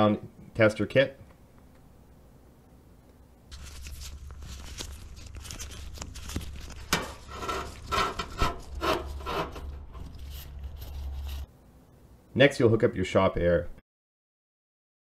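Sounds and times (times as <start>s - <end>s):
steady low hum: 0.0s - 13.8s
hand rubbing against engine parts: 3.5s - 11.5s.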